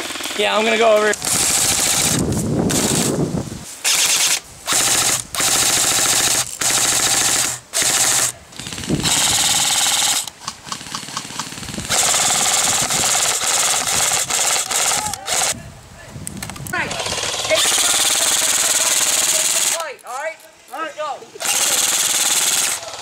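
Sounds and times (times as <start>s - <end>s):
airsoft gun full-auto bursts: 0.0s - 3.2s, 3.8s - 15.6s, 16.9s - 19.8s, 21.4s - 23.0s.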